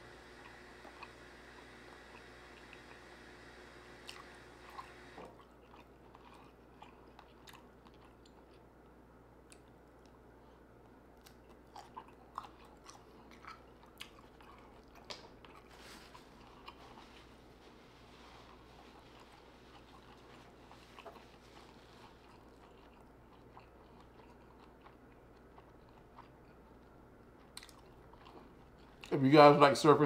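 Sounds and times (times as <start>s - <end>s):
faint steady hum: 0.0s - 30.0s
person chewing food: 0.2s - 3.1s, 3.9s - 29.2s.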